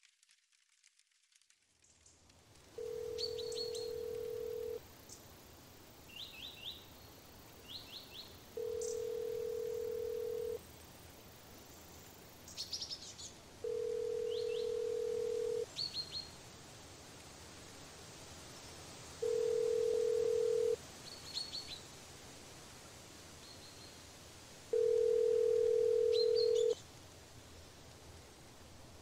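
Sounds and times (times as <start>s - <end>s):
telephone ringing tone: 2.8s - 4.8s, 8.6s - 10.6s, 13.6s - 15.6s, 19.2s - 20.8s, 24.7s - 26.8s
small birds chirping: 3.1s - 5.3s, 6.0s - 10.6s, 14.0s - 16.4s, 25.1s - 26.8s.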